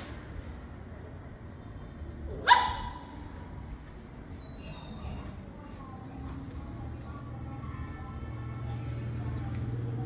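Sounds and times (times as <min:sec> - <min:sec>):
small dog barking: 0:02.4 - 0:03.1.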